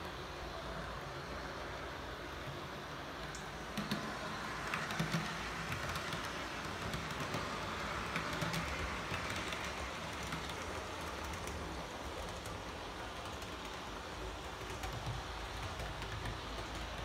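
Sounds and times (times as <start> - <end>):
model train hum: 0.0 - 17.0
wheel clicks on model track: 3.7 - 12.6.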